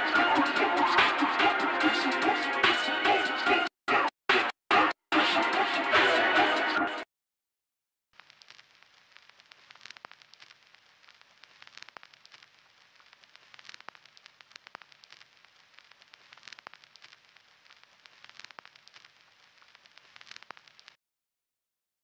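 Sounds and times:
vinyl record crackle: 0:08.2 - 0:21.0.

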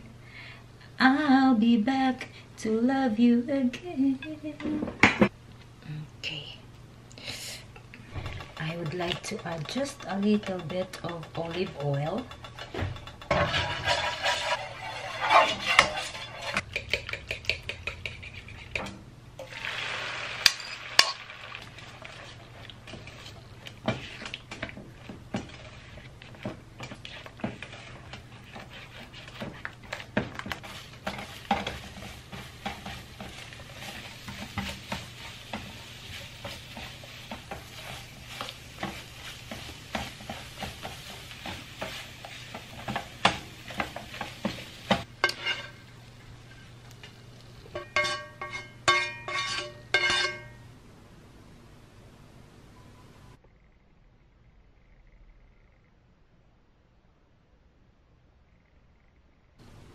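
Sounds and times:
eggs sizzling in a frying pan: 0:07.4 - 0:50.6
spatula scraping a pan: 0:08.1 - 0:19.6, 0:20.3 - 0:46.7, 0:47.7 - 0:50.6.

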